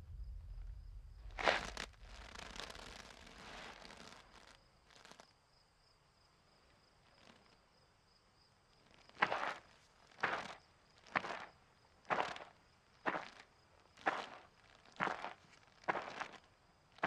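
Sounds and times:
cartoon footstep: 0:00.0 - 0:03.1
soft rustle: 0:00.0 - 0:05.3.

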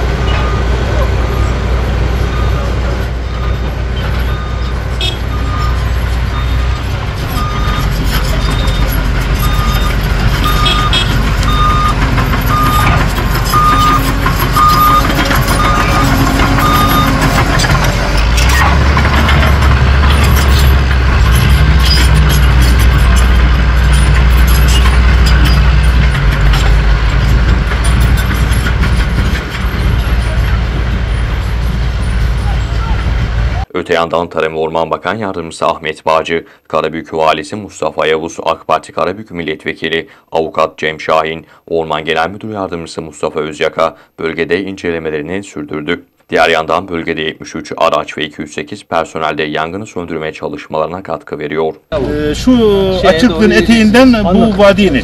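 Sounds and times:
bulldozer diesel engine: 0:00.0 - 0:33.7, 0:51.9 - 0:55.0
back-up alarm beeping: 0:02.3 - 0:17.4.

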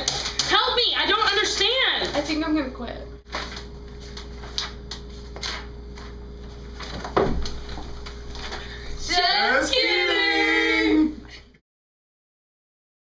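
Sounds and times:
faint steady hum: 0:00.0 - 0:11.6
paper rustling: 0:03.3 - 0:08.7.

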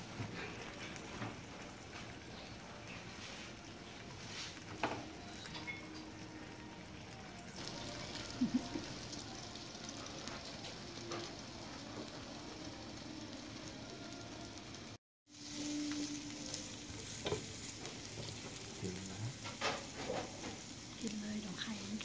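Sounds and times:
food sizzling on a plate: 0:00.0 - 0:22.0
chopsticks clinking on dishes: 0:05.3 - 0:06.1.

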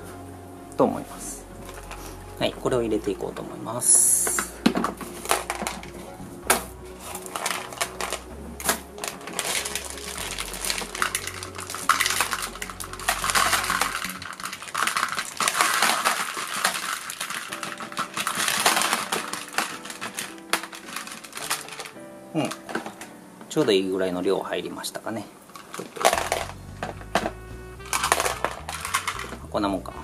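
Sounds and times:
ceramic rings clattering into plastic: 0:04.4 - 0:06.0, 0:09.0 - 0:23.1, 0:25.6 - 0:29.4
rings rattling onto plastic tray: 0:04.8 - 0:06.0, 0:09.0 - 0:23.1, 0:25.6 - 0:27.3, 0:27.9 - 0:29.4.

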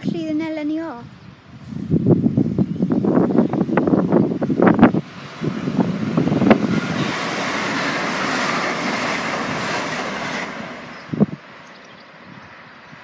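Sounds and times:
high-speed train passing: 0:00.0 - 0:13.0.

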